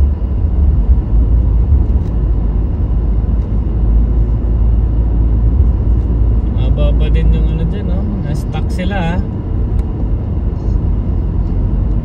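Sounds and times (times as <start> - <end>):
car interior road rumble: 0.0 - 12.0.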